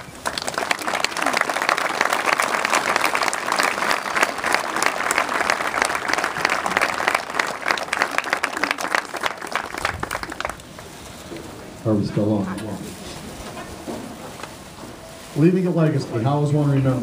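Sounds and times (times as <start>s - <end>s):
crowd applauding: 0.0s - 10.9s.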